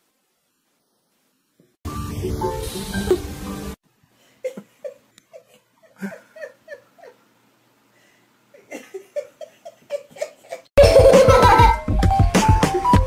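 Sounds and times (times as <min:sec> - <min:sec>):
person giggling: 0:04.4 - 0:07.2, 0:08.5 - 0:11.9.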